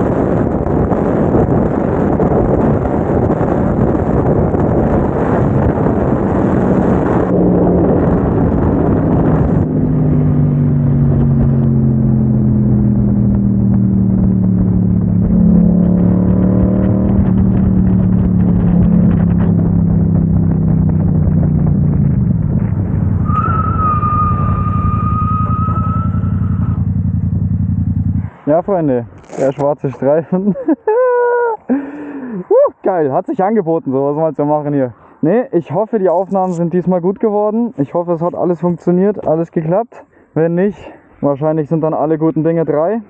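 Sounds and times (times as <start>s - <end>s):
wind rushing over microphone: 0.0s - 30.6s
motorcycle engine running: 2.6s - 23.7s, 24.5s - 28.3s.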